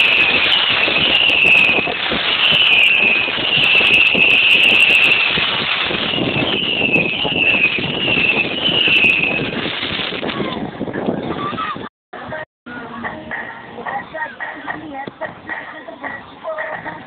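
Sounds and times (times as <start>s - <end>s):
fireworks crackling: 0.0s - 11.2s.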